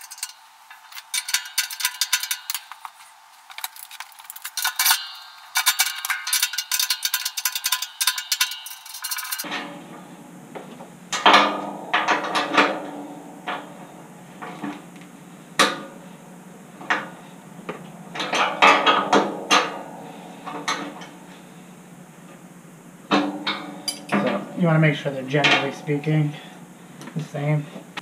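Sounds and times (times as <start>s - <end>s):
wrench clinking on nuts: 0.0s - 9.5s, 23.4s - 24.3s.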